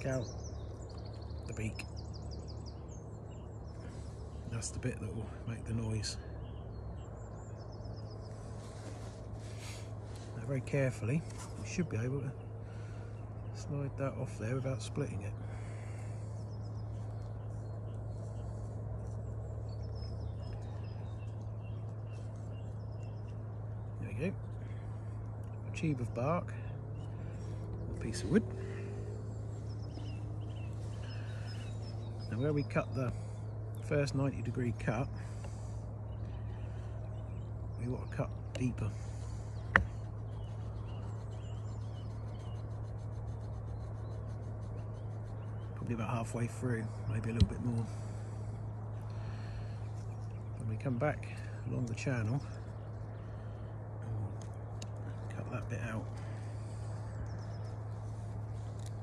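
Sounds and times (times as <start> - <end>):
small birds chirping: 0.0 - 59.0
steady low hum: 0.0 - 59.0
knife scratching twig: 39.2 - 46.2.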